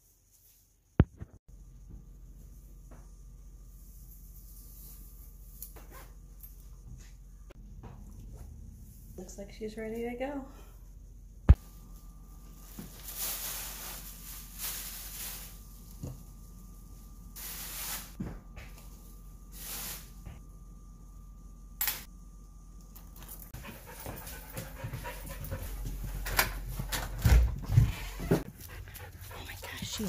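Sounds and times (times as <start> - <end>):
dog panting and whimpering: 23.6 - 26.0, 27.9 - 30.0.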